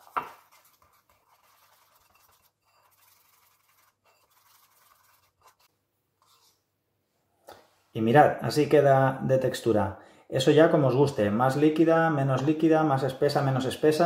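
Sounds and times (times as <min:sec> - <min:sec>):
whisk stirring batter in a bowl: 0:00.0 - 0:06.5.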